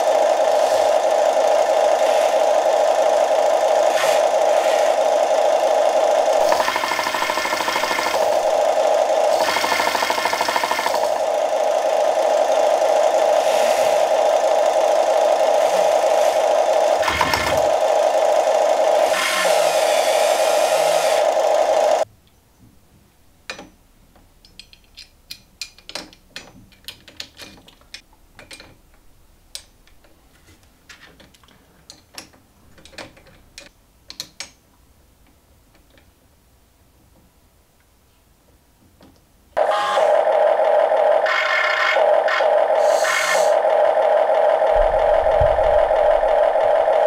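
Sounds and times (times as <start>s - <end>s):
electric toy excavator buzzing: 0.0s - 22.1s, 39.6s - 47.0s.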